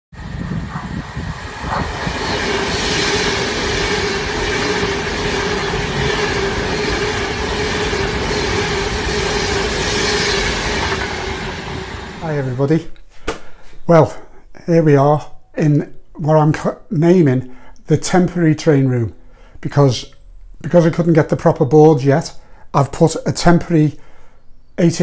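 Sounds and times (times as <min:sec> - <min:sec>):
train wheels rushing on rail: 0:00.1 - 0:12.6
train whine: 0:00.1 - 0:12.7.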